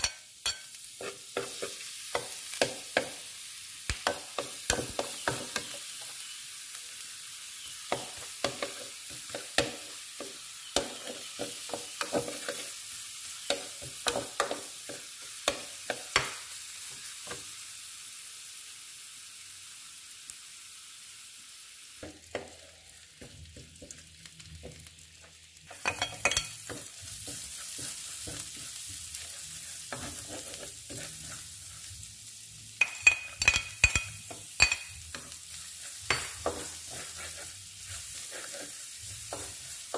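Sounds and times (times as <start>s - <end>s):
metal spatula scraping a pan: 0.0s - 2.8s, 25.7s - 32.1s, 32.8s - 39.9s
garlic and chicken sizzling in oil: 0.0s - 39.9s.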